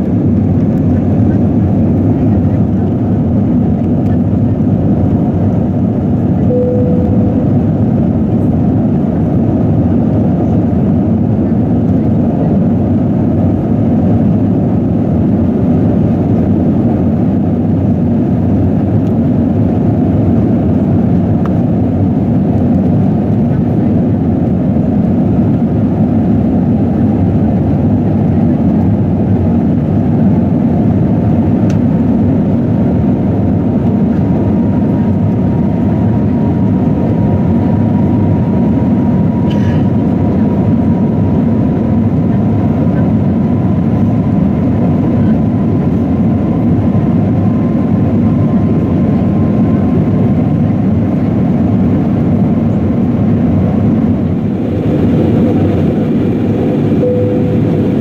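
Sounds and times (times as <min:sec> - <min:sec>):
jet engine cabin rush: 0:00.0 - 0:58.0
brief cabin tone: 0:06.4 - 0:08.4, 0:56.5 - 0:58.0.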